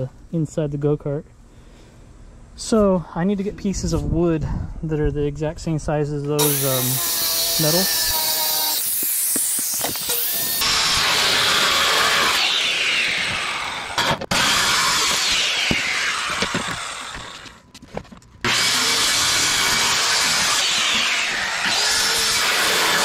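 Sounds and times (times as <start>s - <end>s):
circular saw cutting wood: 6.4s - 17.6s, 18.4s - 23.0s.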